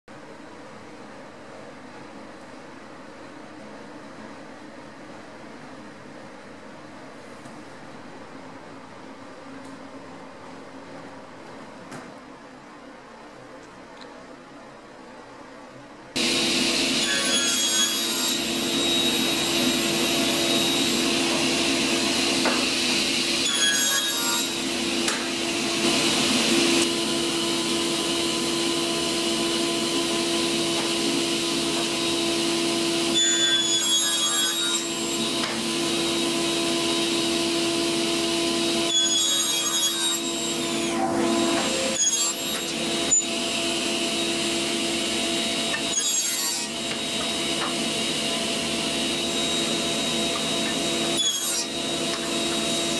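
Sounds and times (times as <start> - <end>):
table saw cutting wood: 16.2 - 52.9.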